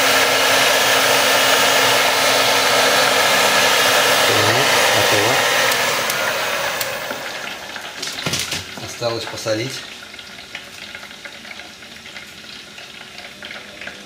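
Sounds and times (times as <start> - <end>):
heat gun blowing air: 0.0 - 7.7.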